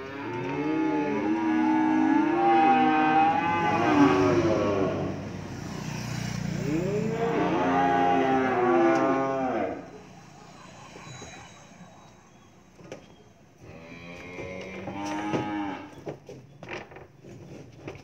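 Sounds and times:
calf mooing: 0:00.0 - 0:05.1, 0:06.7 - 0:10.0, 0:13.6 - 0:16.0.

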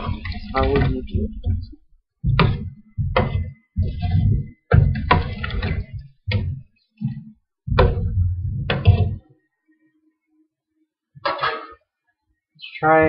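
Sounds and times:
knocks and dull thuds: 0:00.0 - 0:09.3.

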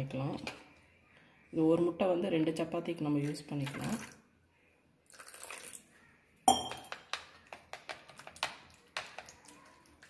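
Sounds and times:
spoon tapping against bowl: 0:06.5 - 0:09.3.

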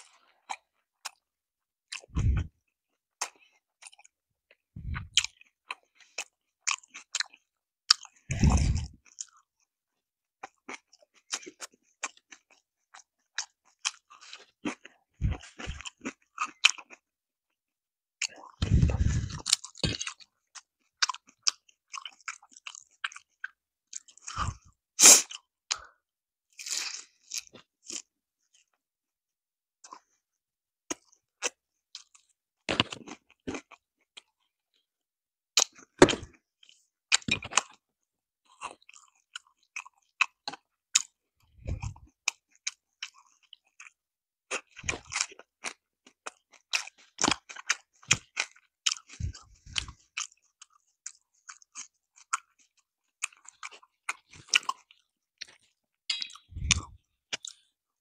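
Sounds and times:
wet chewing: 0:01.9 - 0:02.5, 0:04.8 - 0:09.5, 0:38.6 - 0:57.7
crunching fried chicken: 0:18.3 - 0:25.9, 0:38.5 - 0:55.8.

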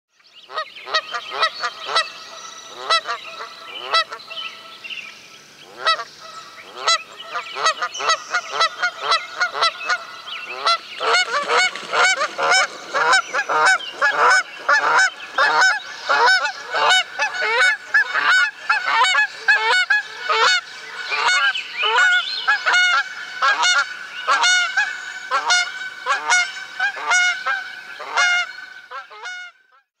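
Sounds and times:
geese honking in flight: 0:00.5 - 0:04.8, 0:05.7 - 0:29.6.

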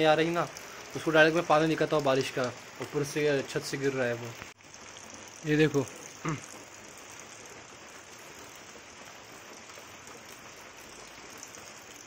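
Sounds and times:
light rain falling: 0:00.0 - 0:12.0
rainwater trickling off roof: 0:00.0 - 0:12.0.

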